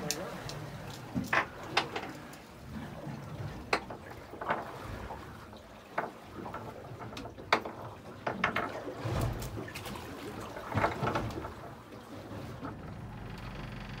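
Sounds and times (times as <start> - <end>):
fishing gear clicks and knocks: 0.0 - 2.5.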